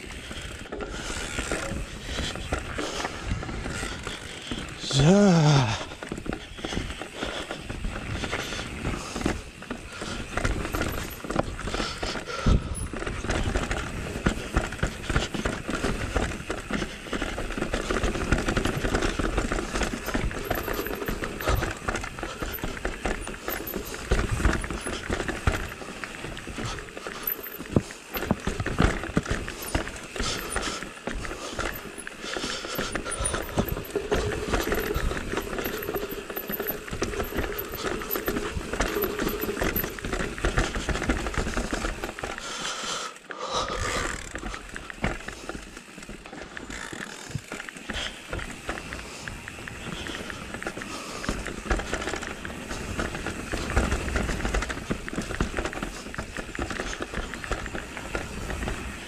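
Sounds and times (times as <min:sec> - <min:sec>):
bike rolling over trail: 0:00.0 - 0:59.0
bike knocking on stones: 0:06.0 - 0:12.1, 0:12.7 - 0:42.5, 0:44.2 - 0:59.0.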